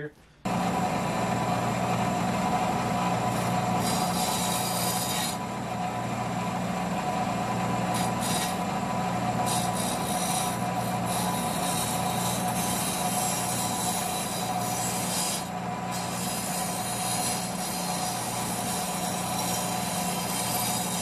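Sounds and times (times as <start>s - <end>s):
bench grinder motor hum: 0.4s - 21.0s
metal grinding hiss: 3.2s - 5.4s, 7.9s - 8.7s, 9.3s - 21.0s.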